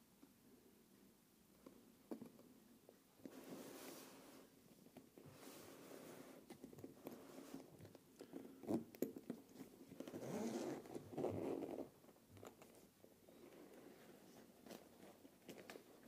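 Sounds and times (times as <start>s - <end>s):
bag zipper pulled open: 10.0s - 11.9s.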